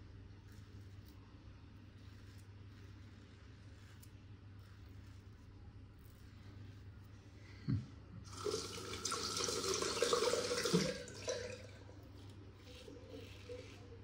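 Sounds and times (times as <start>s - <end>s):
tap water running into sink: 8.3s - 11.8s.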